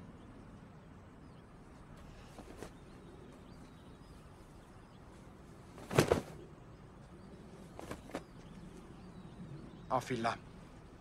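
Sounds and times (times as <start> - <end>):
faint bird chirps: 0.0 - 11.0
clothing swishing: 2.2 - 2.9, 5.6 - 6.4.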